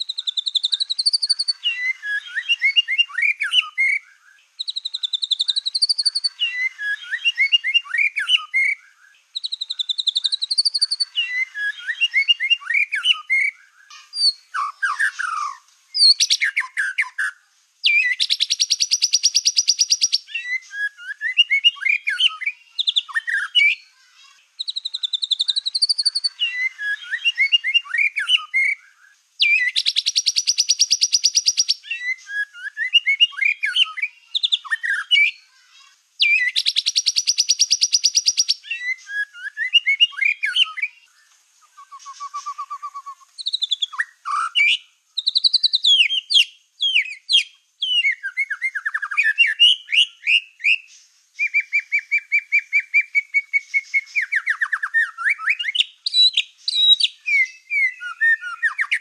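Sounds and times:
rapid bird trill: 0:00.0 - 0:41.1, 0:41.8 - 0:59.0
songbird whistled song: 0:00.0 - 0:59.0.

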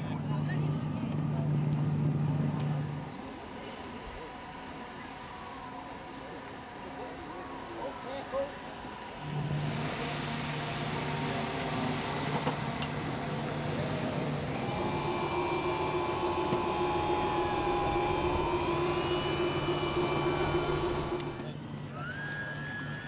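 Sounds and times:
electric fans whining: 0:09.2 - 0:23.0
higher whining tones: 0:11.8 - 0:21.6.

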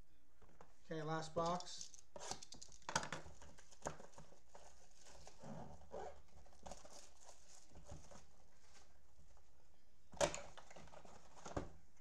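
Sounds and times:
plastic wrap rustling: 0:02.4 - 0:09.0.

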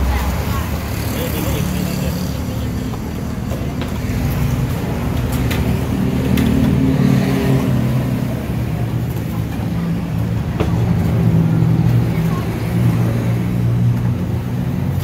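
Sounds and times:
low rumble of food stall: 0:00.0 - 0:15.0.

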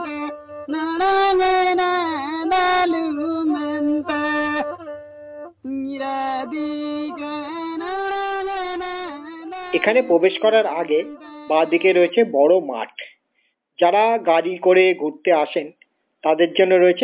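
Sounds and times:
person singing long notes: 0:00.0 - 0:12.1.

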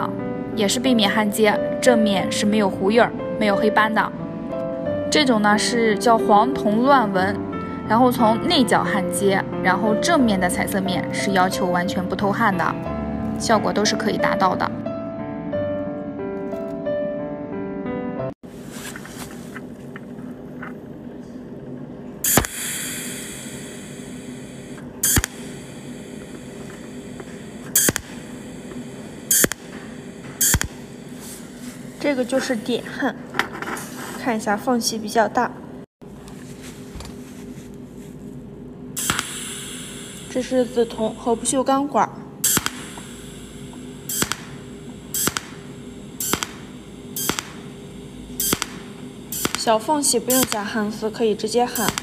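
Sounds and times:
faint steady hum: 0:18.6 - 0:52.0
spot welder crackle: 0:22.3 - 0:32.5, 0:39.0 - 0:41.6, 0:42.4 - 0:52.0.

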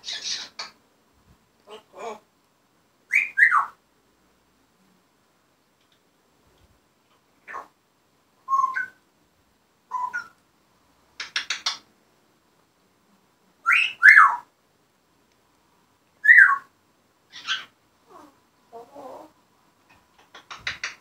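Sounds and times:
parrot whistling and calling: 0:03.1 - 0:03.8, 0:08.5 - 0:09.0, 0:09.9 - 0:10.4, 0:13.7 - 0:14.5, 0:16.2 - 0:16.7, 0:17.3 - 0:17.7.

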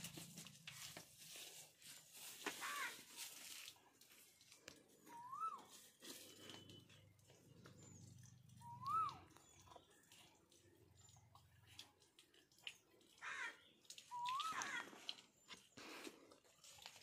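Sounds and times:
bird whistled call: 0:05.1 - 0:05.8, 0:08.6 - 0:09.4, 0:14.1 - 0:14.7.

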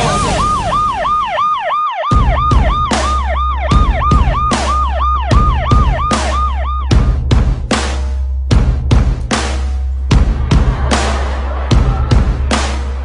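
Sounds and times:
yelp siren wailing: 0:00.0 - 0:07.0
heavy drum beat and bass: 0:00.0 - 0:13.0.

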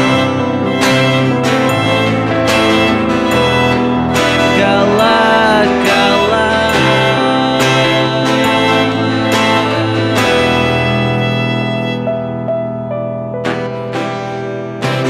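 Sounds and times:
electric guitar: 0:00.0 - 0:15.0
keyboard: 0:00.0 - 0:15.0.

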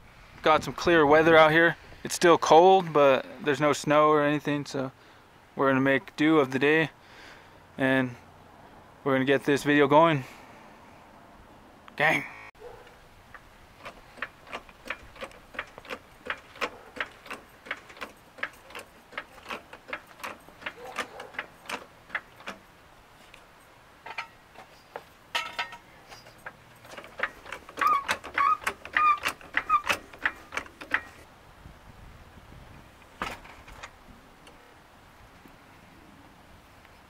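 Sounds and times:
floor jack squeaks: 0:13.8 - 0:22.5, 0:26.1 - 0:31.2
floor jack clicking: 0:13.8 - 0:22.6, 0:25.4 - 0:31.2.

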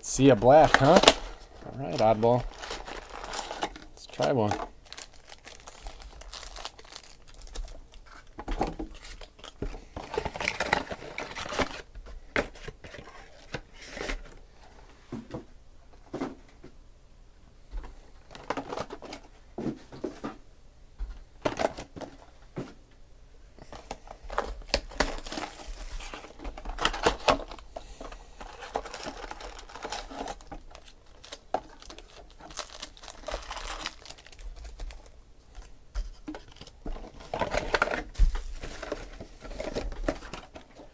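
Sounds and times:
foil card packs crinkling: 0:00.0 - 0:14.2, 0:23.6 - 0:40.9.

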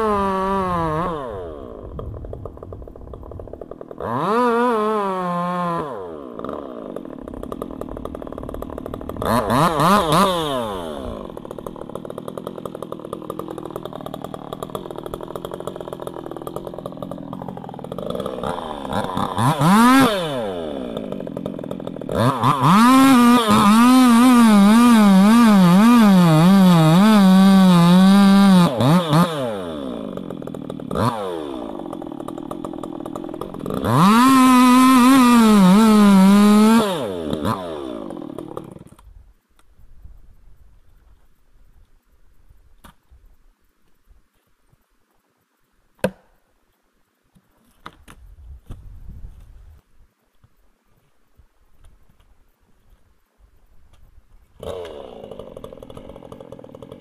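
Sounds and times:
chainsaw revving and idling: 0:00.0 - 0:39.1, 0:54.6 - 0:57.0.

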